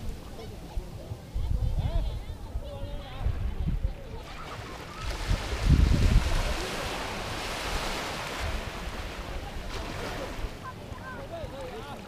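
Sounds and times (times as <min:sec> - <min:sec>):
wind buffeting microphone: 0:00.0 - 0:09.8
waves washing on sandy beach: 0:02.4 - 0:12.0.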